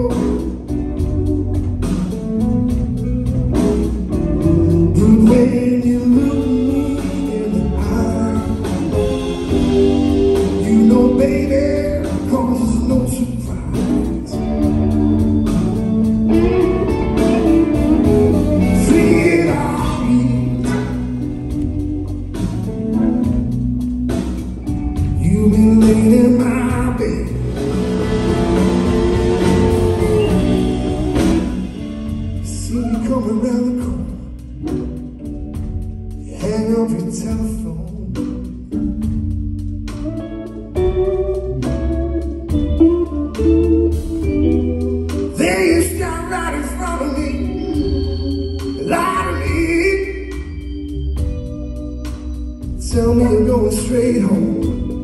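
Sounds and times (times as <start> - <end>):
person singing: 0.0 - 1.9, 3.6 - 22.6, 25.0 - 34.8, 43.0 - 51.2, 52.6 - 55.0
live blues band playing: 0.0 - 55.0.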